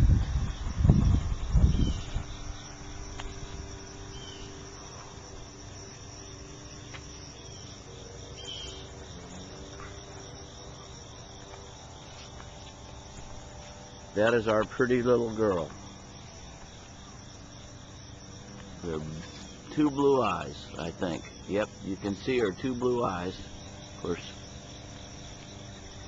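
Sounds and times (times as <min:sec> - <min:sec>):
low rumbling thumps: 0:00.0 - 0:03.7
insects chirring: 0:00.0 - 0:26.0.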